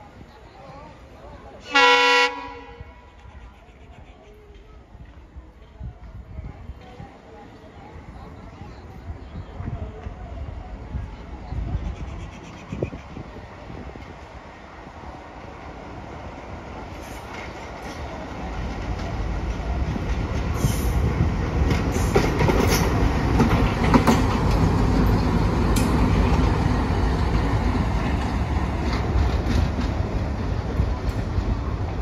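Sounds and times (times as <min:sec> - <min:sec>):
diesel locomotive passing: 0:00.0 - 0:32.0
wheels clacking over rail joints: 0:16.8 - 0:32.0.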